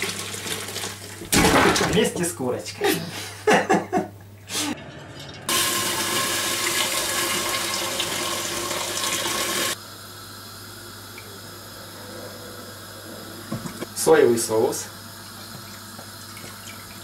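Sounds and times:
water pouring into metal pot: 4.8 - 9.8.

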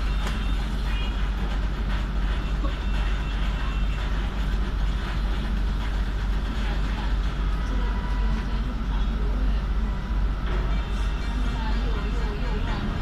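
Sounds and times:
bus engine rumble: 0.0 - 13.0.

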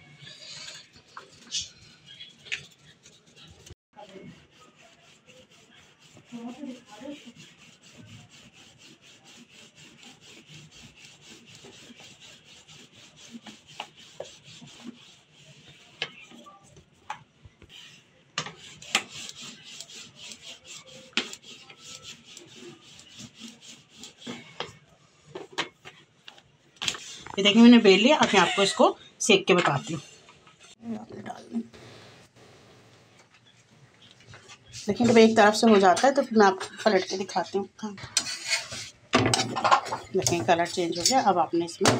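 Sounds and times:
rolling pin rubbing dough: 0.2 - 17.0, 17.6 - 24.8, 34.5 - 41.9.

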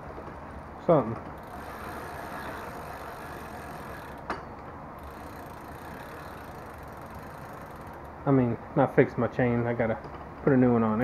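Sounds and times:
bicycle chain running: 1.3 - 4.4, 5.0 - 8.3.

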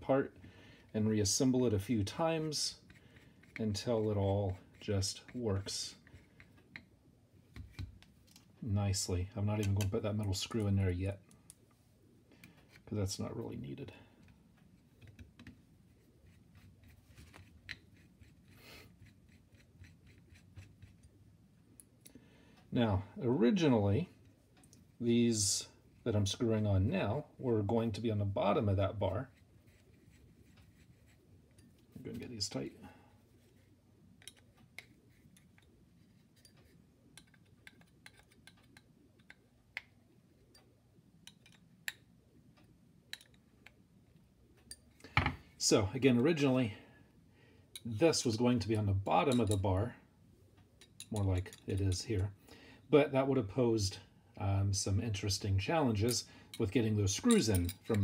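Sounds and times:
light clicks of metal parts: 9.6 - 11.8, 28.7 - 46.6, 47.7 - 52.4, 55.7 - 58.0
soft rustle: 27.2 - 37.9.

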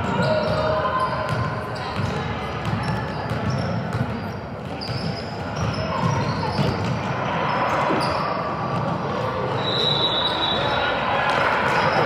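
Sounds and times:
crowd chatter: 0.0 - 12.0.

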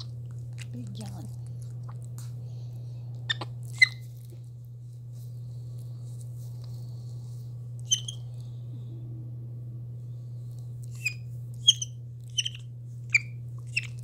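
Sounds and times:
steady low hum: 0.0 - 14.0
monkey squeaking: 3.3 - 4.0, 7.9 - 8.2, 11.0 - 14.0.

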